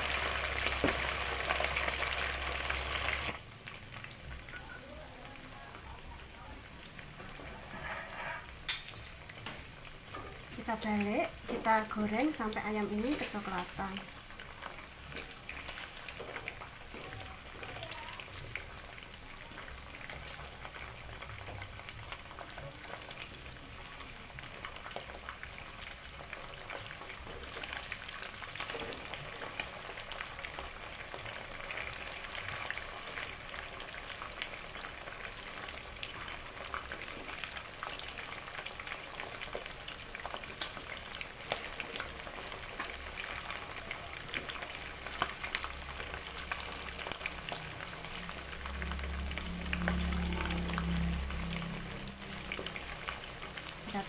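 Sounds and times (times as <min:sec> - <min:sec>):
chicken frying in hot oil: 0:00.0 - 0:54.0
wooden spatula turning food: 0:07.0 - 0:49.3.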